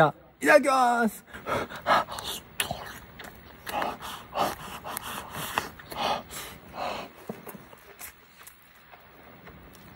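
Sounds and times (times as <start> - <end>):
breath puffs while chewing: 1.4 - 7.5.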